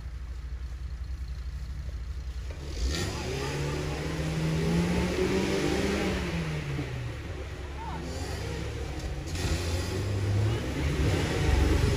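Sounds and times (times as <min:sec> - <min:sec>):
vehicle engine revving hard: 0:02.6 - 0:07.2, 0:08.0 - 0:11.9.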